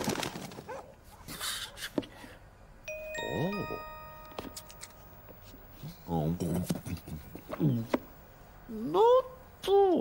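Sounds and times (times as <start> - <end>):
twinkling bell-like chimes: 2.9 - 5.8.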